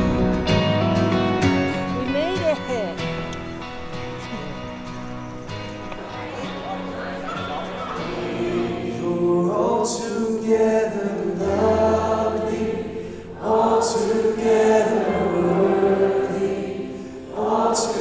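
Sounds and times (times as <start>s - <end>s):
worship band and congregation singing: 4.4s - 18.0s.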